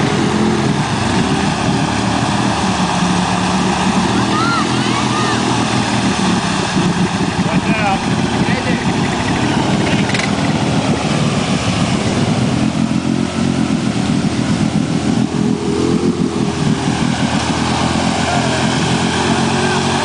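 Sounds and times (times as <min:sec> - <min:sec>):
atv engine running under load: 0:00.0 - 0:20.0
wheels ploughing through mud: 0:00.0 - 0:20.0.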